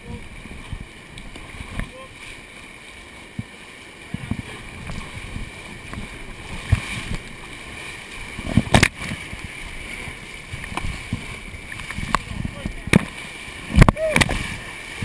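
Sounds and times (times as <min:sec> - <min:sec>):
wave splashing over bow: 0:00.0 - 0:15.0
whitewater rapids rushing: 0:00.0 - 0:15.0
thuds on raft: 0:08.4 - 0:09.5, 0:10.6 - 0:14.6.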